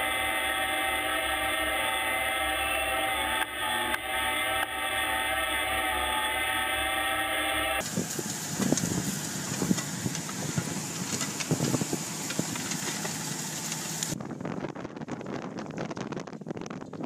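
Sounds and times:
tractor engine under load: 0:00.0 - 0:14.2.

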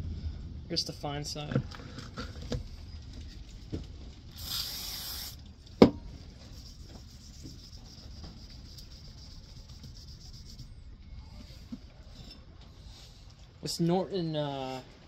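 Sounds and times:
aerosol can spraying: 0:04.4 - 0:05.4.

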